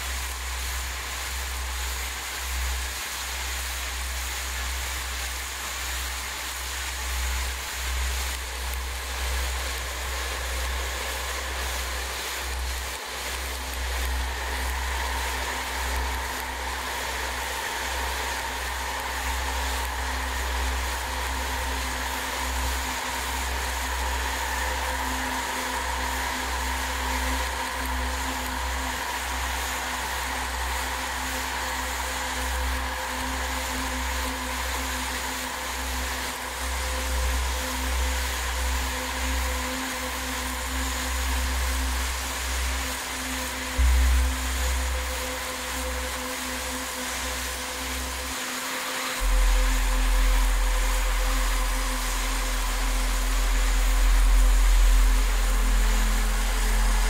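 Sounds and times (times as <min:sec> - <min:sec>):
wind rumble: 0:08.3 - 0:39.9, 0:49.2 - 0:57.0.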